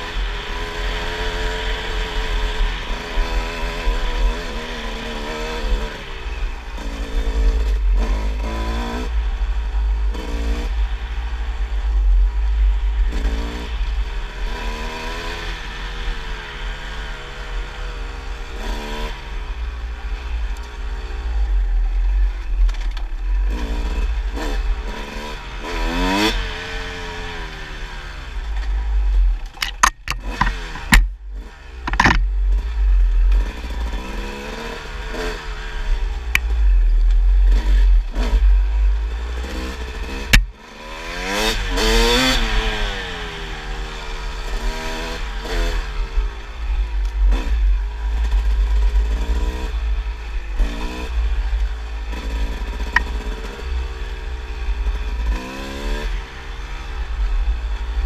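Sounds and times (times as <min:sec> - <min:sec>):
dirt bike engine revving: 0:00.0 - 0:21.6, 0:23.3 - 0:58.0
sharp clattering knocks: 0:29.4 - 0:31.1, 0:31.8 - 0:32.3.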